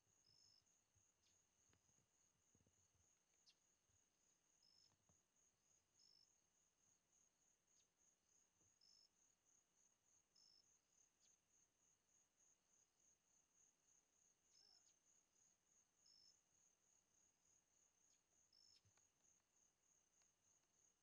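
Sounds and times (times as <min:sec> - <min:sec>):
insect chirps: 0:00.0 - 0:21.0
crickets trilling: 0:17.5 - 0:20.2.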